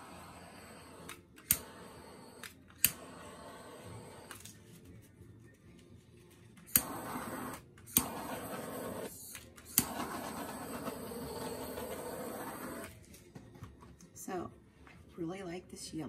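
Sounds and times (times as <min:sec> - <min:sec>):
torch flame hissing: 0:00.0 - 0:04.4, 0:06.7 - 0:12.9
torch igniter clicking: 0:01.0 - 0:03.2, 0:06.7 - 0:10.6.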